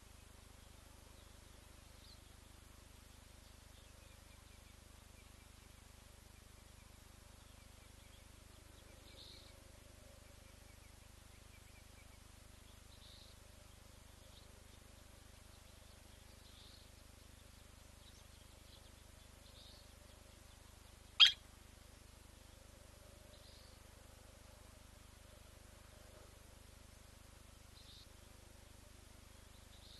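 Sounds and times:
faint soft bird calls: 0.0s - 21.5s, 22.2s - 26.6s, 27.4s - 29.9s
sharp metallic bird call: 21.2s - 21.4s.

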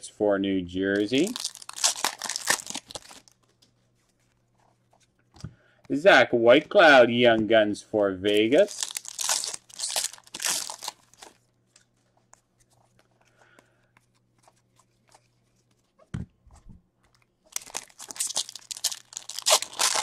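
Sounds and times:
foil wrapper crinkling: 1.0s - 3.5s, 8.3s - 11.5s, 17.5s - 20.0s
cards being handled: 1.0s - 5.2s, 8.3s - 20.0s.

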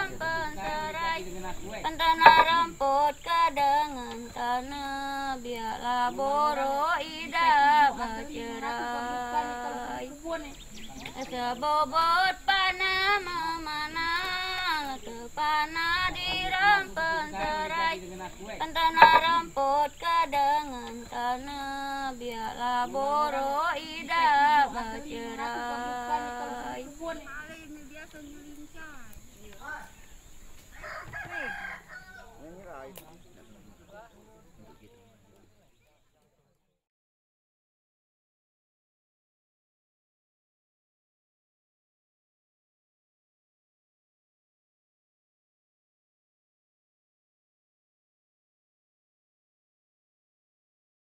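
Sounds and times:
steady low held tone: 0.0s - 29.0s
woman singing with vibrato: 0.0s - 29.1s.

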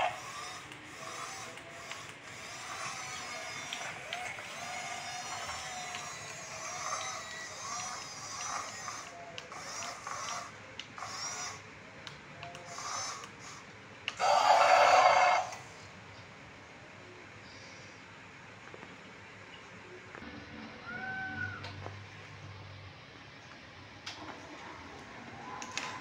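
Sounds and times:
toy excavator motors whirring: 0.0s - 16.0s.

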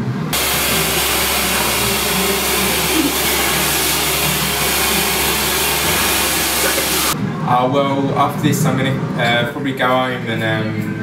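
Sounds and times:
hair dryer blowing: 0.4s - 7.2s.

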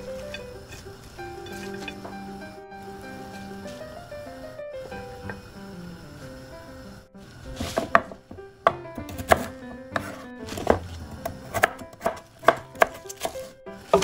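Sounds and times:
knife chopping on wooden board: 7.6s - 14.0s.

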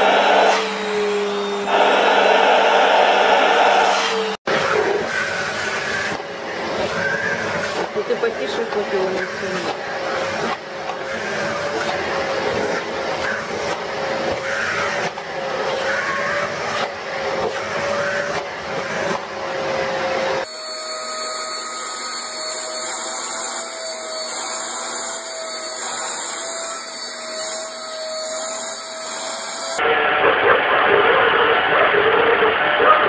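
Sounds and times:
vacuum cleaner motor whine: 0.0s - 30.9s.

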